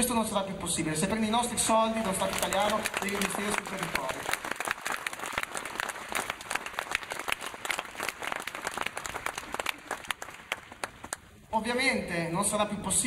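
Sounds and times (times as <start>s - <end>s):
crowd applauding: 1.9s - 11.3s.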